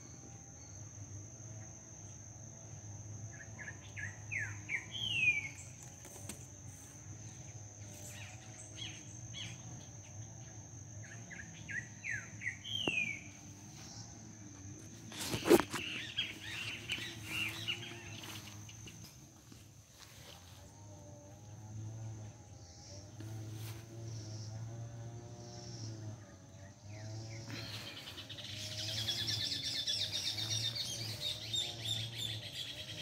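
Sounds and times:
insect trill: 0.0 - 33.0
birds chirping: 3.4 - 20.2, 22.5 - 33.0
songbird whistled song: 11.4 - 13.3.

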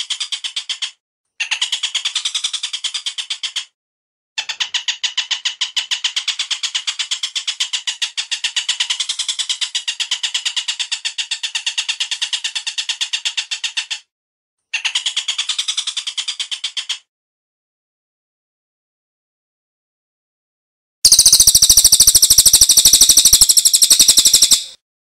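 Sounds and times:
bird chattering call: 21.1 - 24.8.

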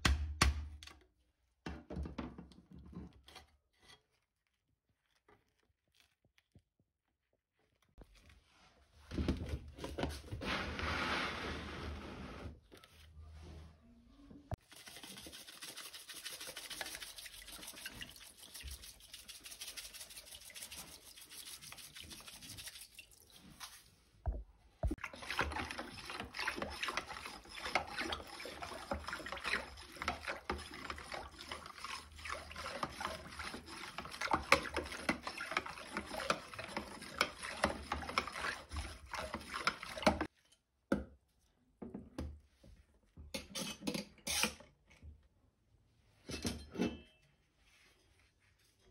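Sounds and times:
metal rod scraping plastic tub: 9.1 - 12.7, 24.8 - 40.3
water sloshing in a tub: 14.5 - 40.3.

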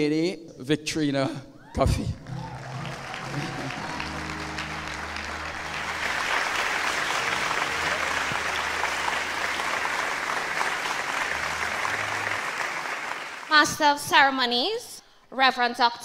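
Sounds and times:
audience applauding: 2.0 - 13.6.

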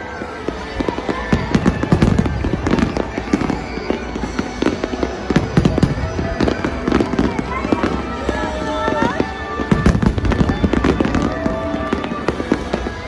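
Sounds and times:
fireworks bangs: 0.0 - 13.0.

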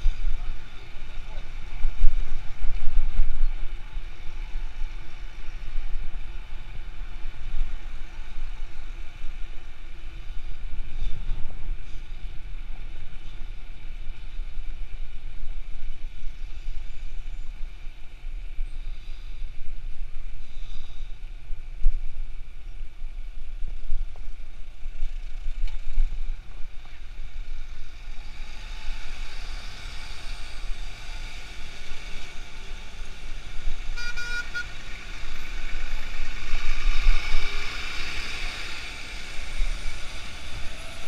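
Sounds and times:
tyre and traffic rush: 0.0 - 41.0
wind buffeting microphone: 0.0 - 41.0.

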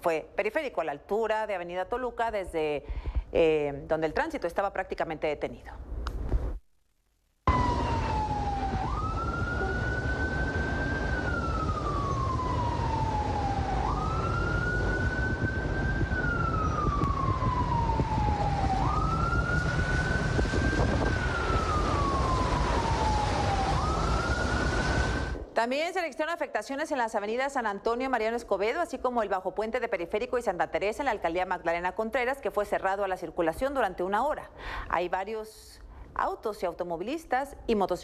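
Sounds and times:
emergency siren wailing: 7.5 - 25.4
water noise: 7.5 - 25.4.

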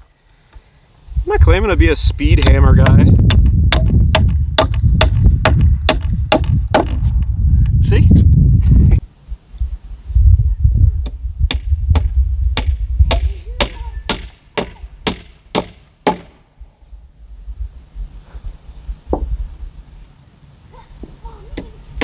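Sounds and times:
steady low rumble: 1.0 - 14.1, 16.5 - 20.6
hammer striking nails into wood: 2.4 - 7.0, 11.5 - 16.4.

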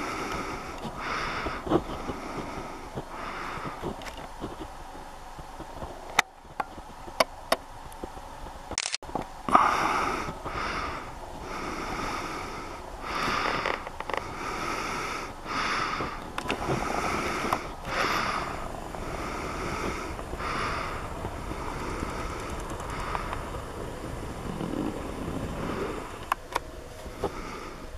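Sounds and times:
breathing close to microphone: 0.0 - 5.5, 9.5 - 27.9
sharp clicks: 6.1 - 9.3, 22.0 - 23.4.

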